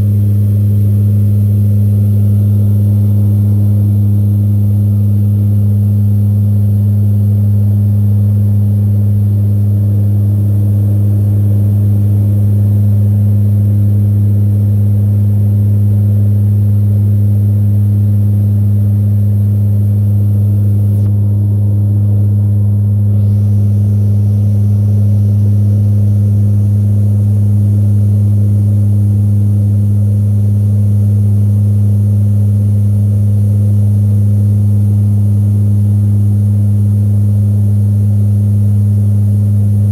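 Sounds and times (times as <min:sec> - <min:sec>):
aircraft propeller engines droning: 0:00.0 - 0:30.2.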